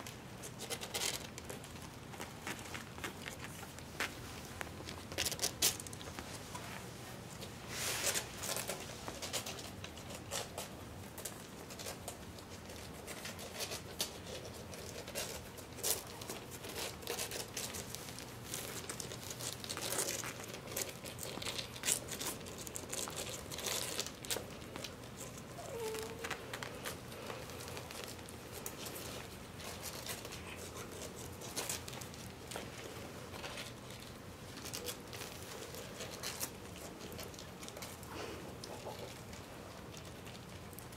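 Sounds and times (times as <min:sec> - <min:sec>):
puppies scrabbling on blanket: 0:00.0 - 0:40.9
faint puppy squeak: 0:25.5 - 0:26.3.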